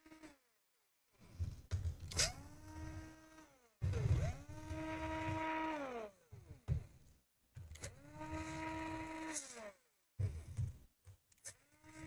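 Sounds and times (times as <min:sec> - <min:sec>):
cordless drill motor running: 0:02.2 - 0:06.1, 0:07.8 - 0:09.7.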